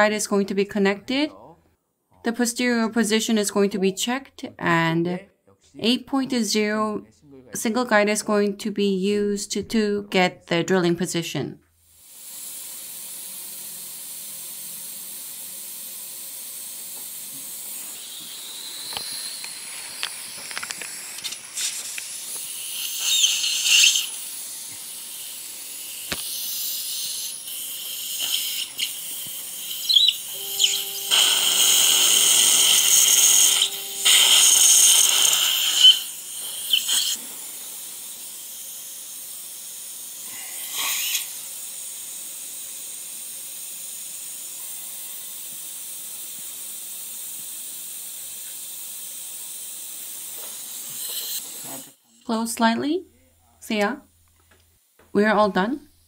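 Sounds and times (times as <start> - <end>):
dental drill whine: 11.8 - 52.0
dental suction hissing: 11.8 - 52.4.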